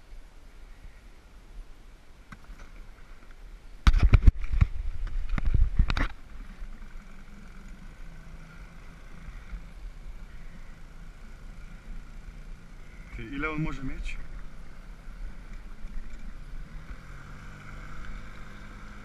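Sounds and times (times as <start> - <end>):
outboard motor idling: 6.0 - 19.0.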